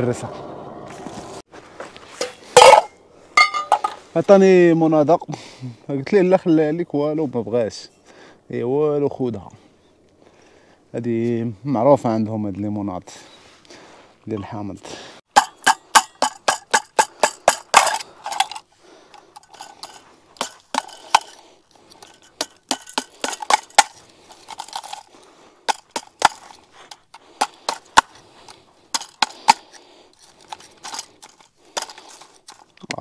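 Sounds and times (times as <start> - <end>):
ice pieces clattering: 17.0 - 25.1
ice being broken up: 25.7 - 32.8.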